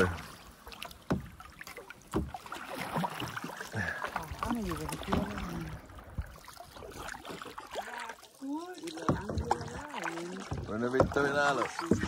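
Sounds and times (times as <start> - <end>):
paddles stroking through water: 0.0 - 12.0
water dripping: 0.0 - 12.0
wood knocking against boat: 0.8 - 3.4, 8.9 - 12.0.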